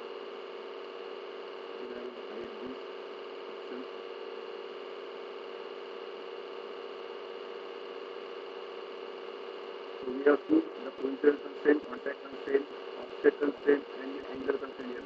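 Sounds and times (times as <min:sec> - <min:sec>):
electrical hum with hiss: 0:00.0 - 0:15.0.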